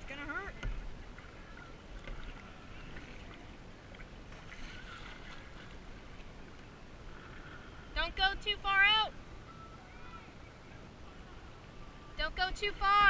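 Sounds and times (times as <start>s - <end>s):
paddle blades dipping: 0.0s - 13.0s
water lapping against hull: 0.0s - 13.0s.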